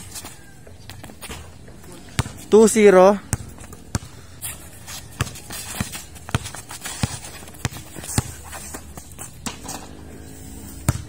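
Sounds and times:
basketball bouncing on concrete: 0:00.2 - 0:10.0
sneakers scuffing: 0:03.6 - 0:10.0.

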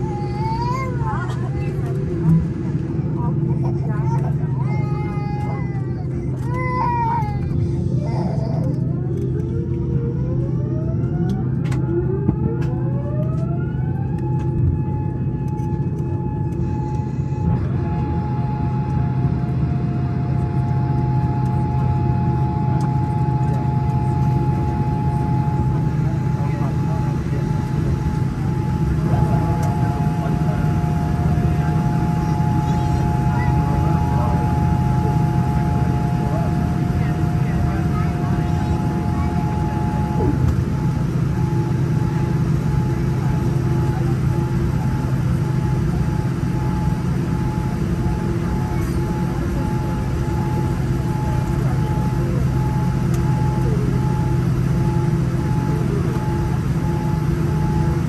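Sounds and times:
airliner cabin engine rumble: 0:00.0 - 0:58.0
high jet engine whine: 0:00.0 - 0:58.0
lower jet engine whine: 0:00.0 - 0:58.0
faint pulsing tone: 0:13.9 - 0:58.0.

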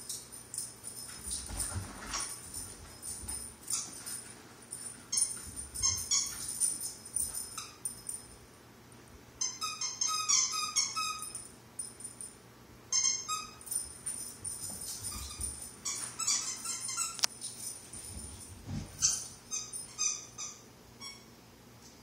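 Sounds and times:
squeaky dog toy squeaking: 0:09.4 - 0:11.4, 0:12.9 - 0:13.7, 0:15.1 - 0:17.3, 0:19.0 - 0:21.3.

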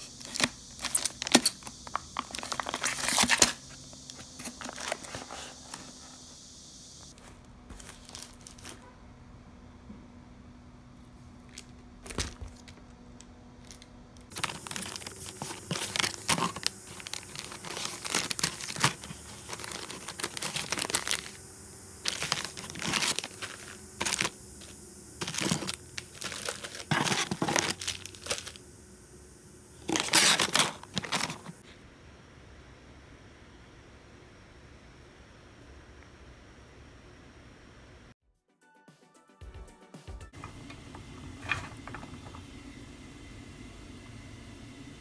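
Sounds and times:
plastic packaging crinkling: 0:00.0 - 0:06.0, 0:07.2 - 0:08.8, 0:13.6 - 0:21.4, 0:22.0 - 0:28.6, 0:29.8 - 0:31.6.

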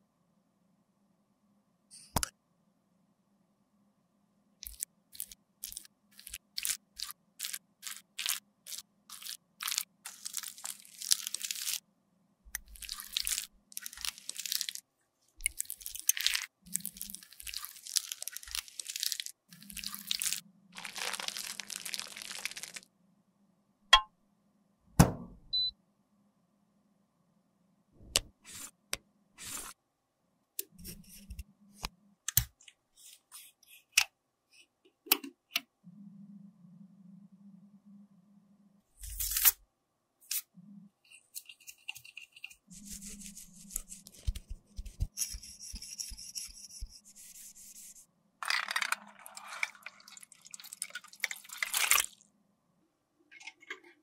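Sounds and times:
makeup crunching: 0:04.7 - 0:11.8, 0:12.6 - 0:14.8, 0:15.4 - 0:22.8
scratchy scraping: 0:41.2 - 0:50.0.

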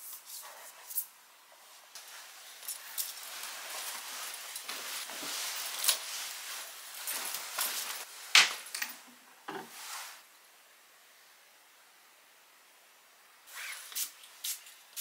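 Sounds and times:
fabric rustling: 0:01.6 - 0:08.7, 0:09.7 - 0:10.3.

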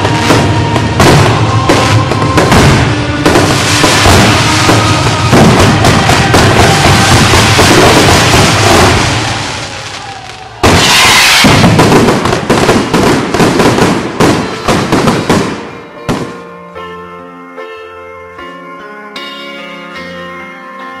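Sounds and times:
music with sustained notes: 0:00.0 - 0:10.0, 0:13.7 - 0:21.0
fireworks crackling and banging: 0:00.0 - 0:16.4.

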